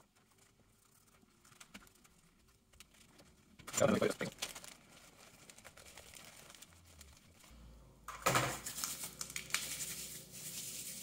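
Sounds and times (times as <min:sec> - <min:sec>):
plastic bag crinkling: 0:00.8 - 0:07.5.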